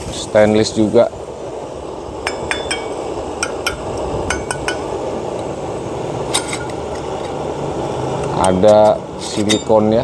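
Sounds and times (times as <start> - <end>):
metal tumbler clinking: 2.3 - 4.9, 6.2 - 7.4, 8.2 - 10.0.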